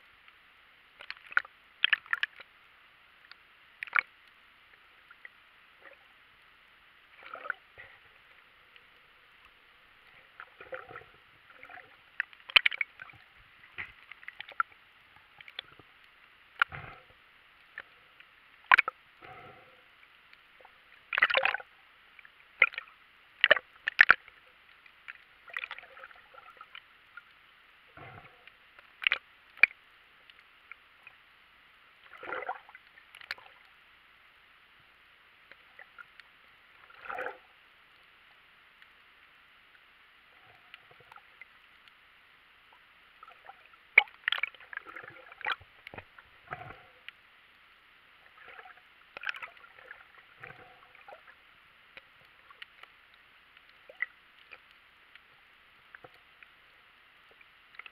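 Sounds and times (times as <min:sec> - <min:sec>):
bursts of water noise: 0:00.0 - 0:57.9
faint underwater hiss: 0:00.0 - 0:57.9
sharp underwater clicks: 0:01.0 - 0:02.5, 0:03.2 - 0:04.4, 0:10.4 - 0:19.6, 0:20.3 - 0:27.4, 0:28.0 - 0:31.2, 0:42.7 - 0:47.2, 0:48.4 - 0:56.5.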